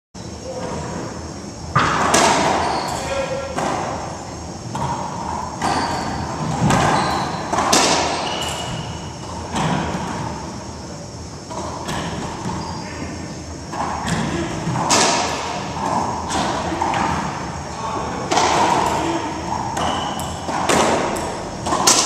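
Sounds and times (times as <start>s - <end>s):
ball cracking off racquets and walls: 1.7s - 2.7s, 4.7s - 8.9s, 13.7s - 17.3s, 18.3s - 19.0s, 19.6s - 22.0s.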